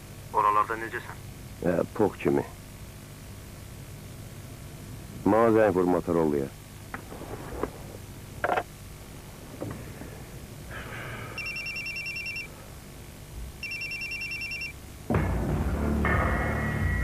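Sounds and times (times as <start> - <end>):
mobile phone ringing: 11.4 - 12.5, 13.6 - 14.8
low music: 15.1 - 17.0.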